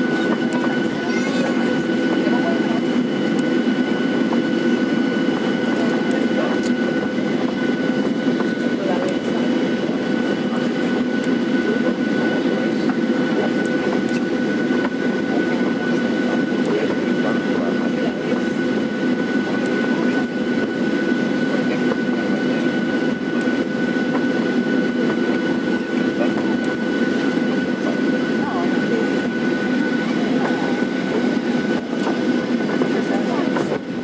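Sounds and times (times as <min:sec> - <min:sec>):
jet engine whine and rumble: 0:00.0 - 0:34.0.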